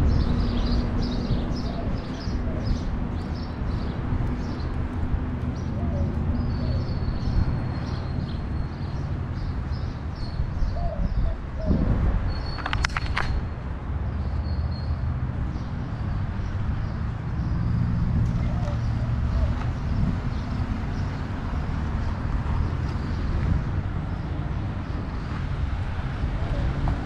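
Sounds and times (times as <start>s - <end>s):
birds chirping: 0.0s - 13.4s
street traffic rumble: 0.0s - 27.0s.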